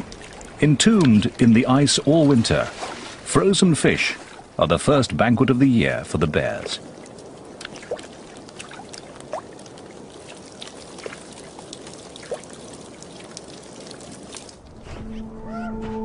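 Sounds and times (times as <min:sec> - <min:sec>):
water drips plinking: 0:00.0 - 0:03.1, 0:05.8 - 0:14.7
meltwater trickling: 0:00.0 - 0:14.7.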